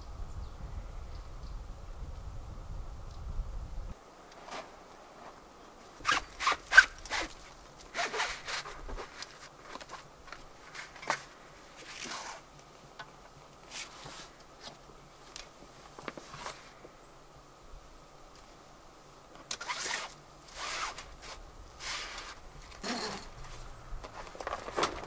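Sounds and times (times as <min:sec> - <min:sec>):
tent canvas rasping and rustling: 0:04.4 - 0:12.5, 0:13.6 - 0:14.8, 0:16.0 - 0:16.8, 0:19.5 - 0:25.0.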